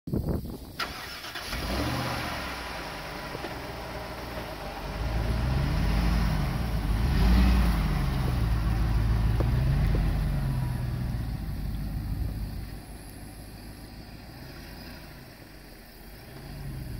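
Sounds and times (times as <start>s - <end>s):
truck engine accelerating: 0.8s - 16.9s.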